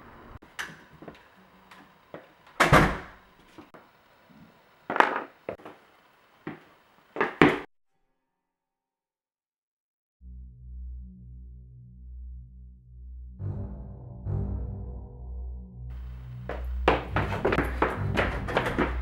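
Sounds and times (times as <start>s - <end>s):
heavy door thunk: 2.6s - 3.2s.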